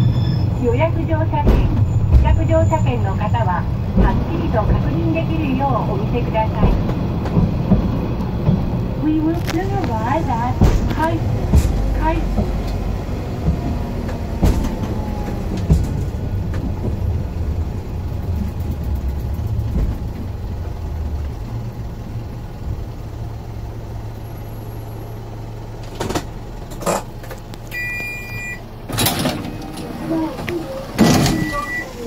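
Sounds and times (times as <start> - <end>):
rail bus engine humming: 0.0 - 32.0
passenger door clattering open: 9.7 - 20.8, 25.8 - 28.2, 28.8 - 32.0
two-tone electronic beep: 27.7 - 28.6, 31.2 - 32.0.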